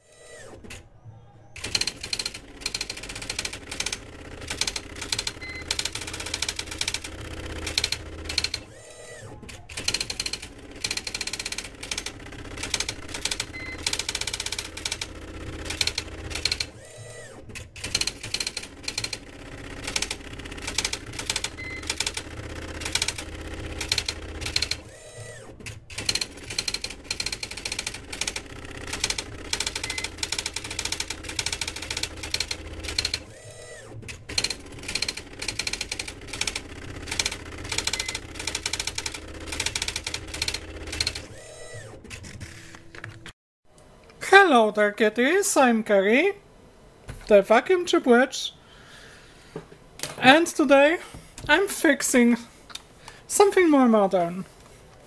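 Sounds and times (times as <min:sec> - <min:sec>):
dot-matrix printer printing: 0:01.6 - 0:43.1.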